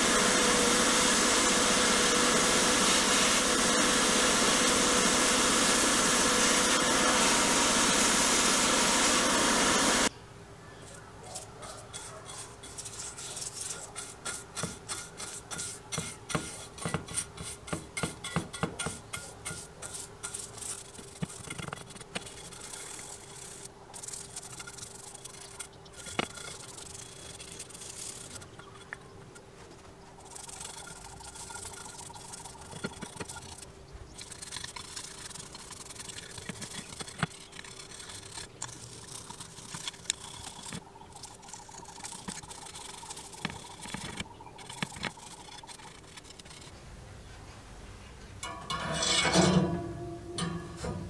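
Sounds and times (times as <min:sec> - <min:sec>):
paintbrush swishing on metal: 0:10.9 - 0:28.6.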